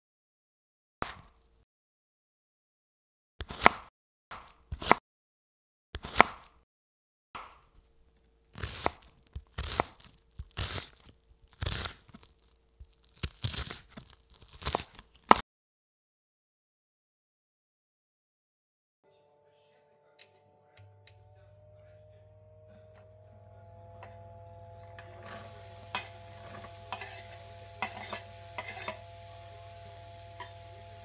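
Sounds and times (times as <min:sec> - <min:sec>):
knife cutting onion: 0:03.4 - 0:05.0, 0:06.0 - 0:06.6, 0:08.5 - 0:15.4, 0:25.2 - 0:31.0
knife tapping cutting board: 0:25.0 - 0:29.0.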